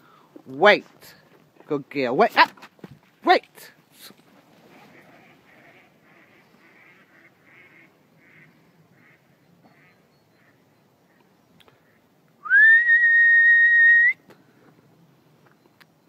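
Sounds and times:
loud rising whistle: 12.4 - 14.2.

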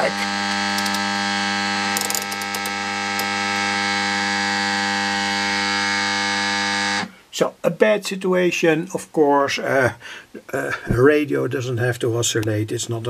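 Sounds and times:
buzzing oscillation tone from loudspeaker: 0.0 - 7.1.

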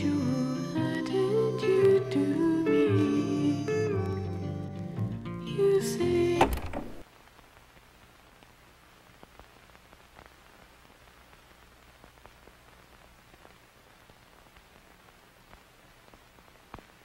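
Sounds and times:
faint steady hiss: 0.0 - 17.0
faint clicks: 7.4 - 17.0.

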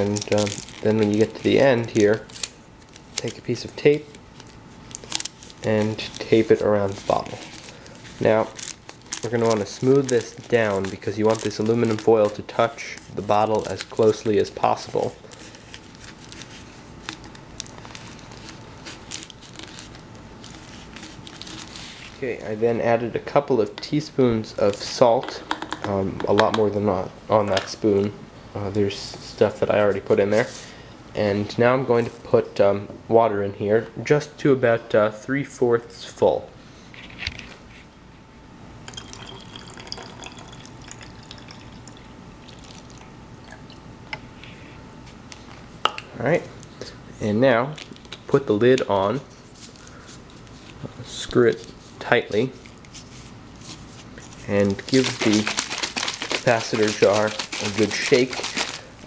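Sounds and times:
aluminum foil crinkling: 0.0 - 22.3, 51.5 - 59.0
water trickling into bottle: 38.9 - 43.8.

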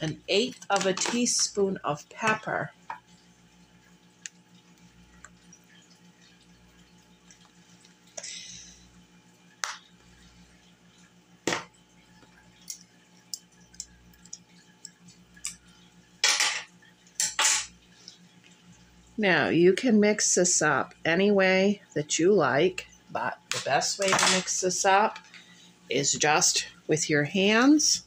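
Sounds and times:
kitchen items clicking and tapping: 0.0 - 1.6, 23.5 - 25.2
low steady hum: 0.0 - 28.0.

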